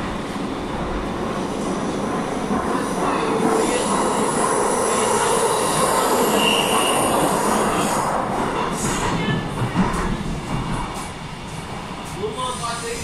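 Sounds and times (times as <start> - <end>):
train rumbling through tunnel: 0.0 - 13.0.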